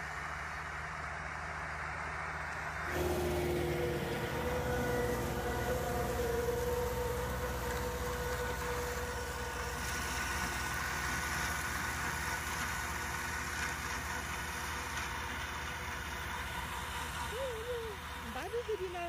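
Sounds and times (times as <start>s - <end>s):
tractor diesel engine running: 0.0s - 19.0s
disc mower cutting grass: 2.8s - 19.0s
steady tone: 2.9s - 10.8s.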